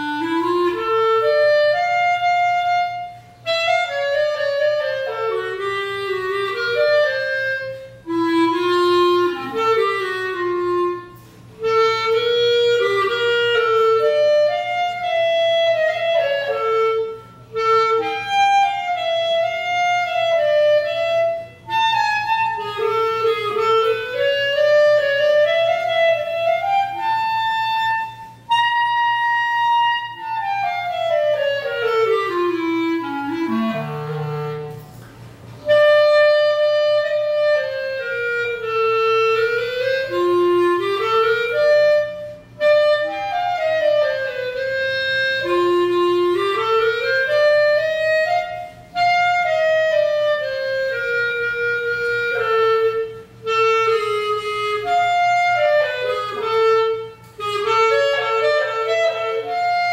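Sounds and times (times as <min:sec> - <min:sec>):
solo clarinet melody: 0:00.0 - 0:59.9.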